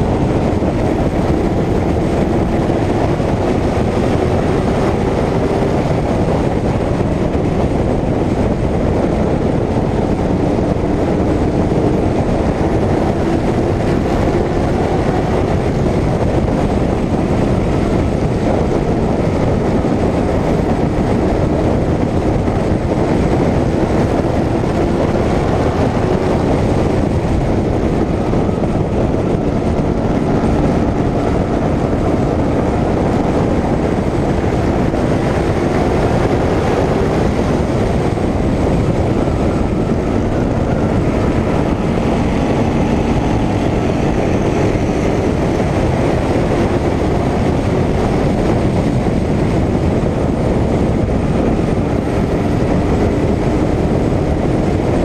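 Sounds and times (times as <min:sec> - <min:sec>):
race car engine running hard: 0:00.0 - 0:55.0
wind and road noise: 0:00.0 - 0:55.0.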